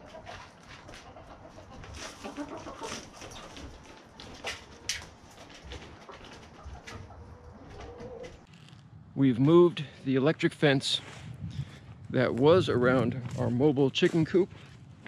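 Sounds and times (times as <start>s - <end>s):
hens clucking softly: 0.0s - 8.5s
hens scratching in bedding: 0.0s - 8.7s.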